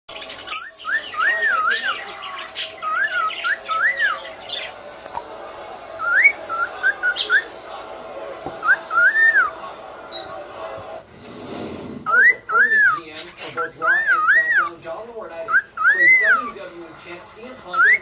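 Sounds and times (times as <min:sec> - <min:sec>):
scratchy bird chirps: 0:00.2 - 0:05.3
cockatiel whistling: 0:02.6 - 0:04.7, 0:13.8 - 0:14.7.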